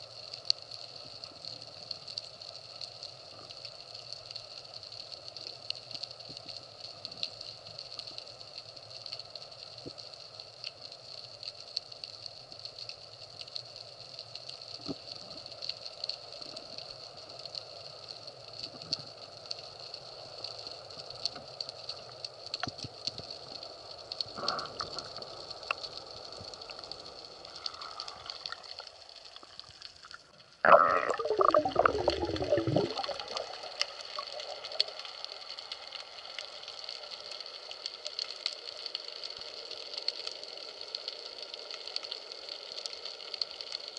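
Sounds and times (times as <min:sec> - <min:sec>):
small clicks and crackles: 0:00.0 - 0:43.9
underwater hiss: 0:23.4 - 0:38.2
water rush: 0:30.7 - 0:35.0.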